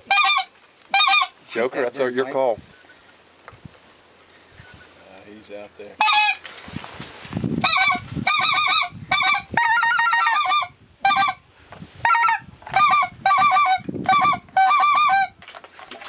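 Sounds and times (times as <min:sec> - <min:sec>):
goose call clucks and honks: 0:00.0 - 0:01.4, 0:06.0 - 0:06.5, 0:07.6 - 0:11.4, 0:12.0 - 0:15.4.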